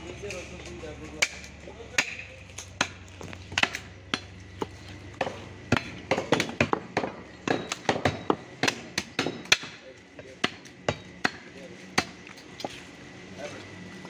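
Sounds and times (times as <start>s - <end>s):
cleaver chopping on wooden block: 2.0s - 9.8s.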